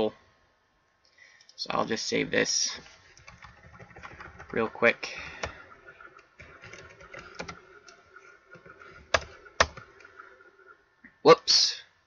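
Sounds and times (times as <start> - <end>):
typing on computer keyboard: 3.1 - 4.7, 6.2 - 9.9.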